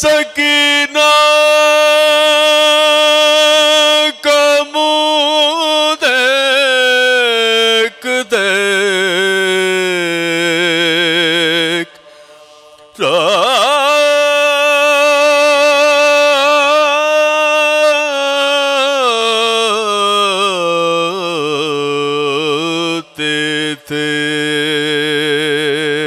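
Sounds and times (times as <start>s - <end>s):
men chanting unaccompanied: 12.6s - 18.0s.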